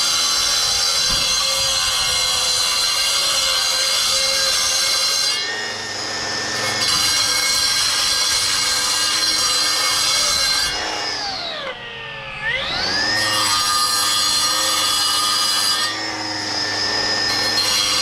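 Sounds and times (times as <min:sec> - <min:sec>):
power saw cutting stone: 0:00.0 - 0:18.0.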